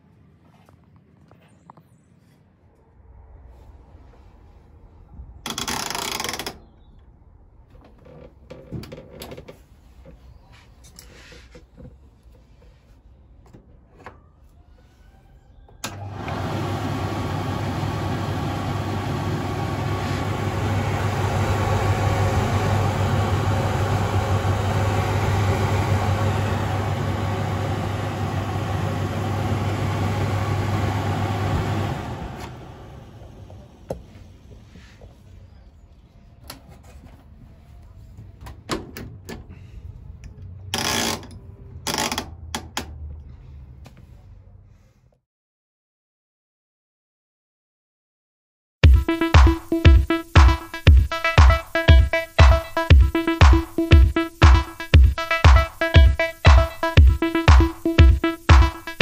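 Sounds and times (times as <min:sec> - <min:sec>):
tumble dryer motor humming: 0:15.8 - 0:34.4, 0:48.8 - 0:59.0.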